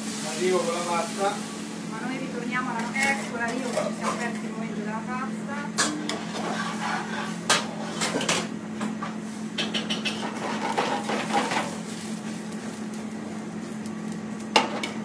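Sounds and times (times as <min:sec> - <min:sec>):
steady low hum: 0:01.1 - 0:15.0
pans and utensils clinking: 0:02.8 - 0:04.5, 0:05.8 - 0:08.5, 0:09.6 - 0:11.8.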